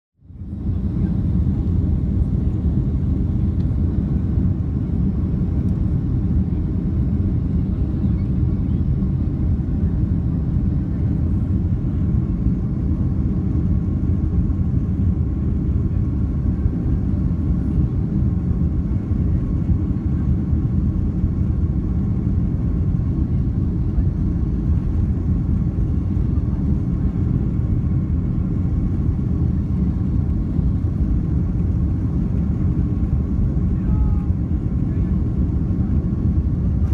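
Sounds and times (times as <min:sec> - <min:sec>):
jet engine rumble in cabin: 0:00.2 - 0:36.9
faint engine tones: 0:14.7 - 0:36.9.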